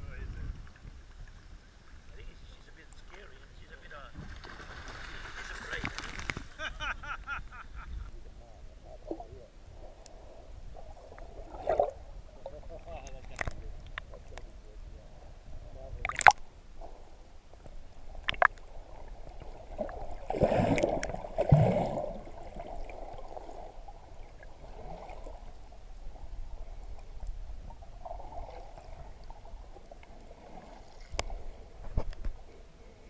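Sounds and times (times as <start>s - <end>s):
underwater gurgling and sloshing: 7.8s - 33.0s
underwater bubbling: 8.6s - 33.0s.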